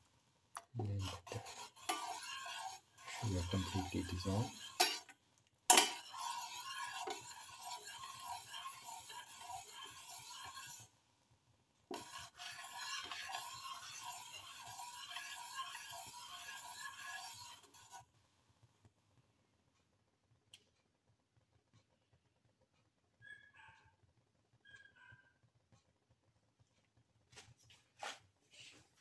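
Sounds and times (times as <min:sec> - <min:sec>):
metal spoon scraping a pan: 0:00.6 - 0:10.9, 0:11.9 - 0:18.0.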